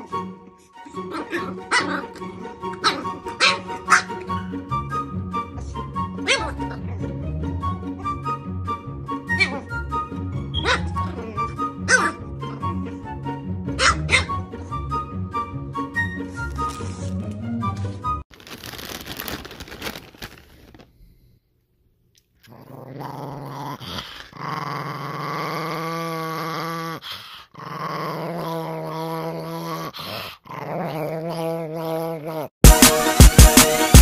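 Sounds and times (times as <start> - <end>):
small dog growling: 22.4 - 32.5.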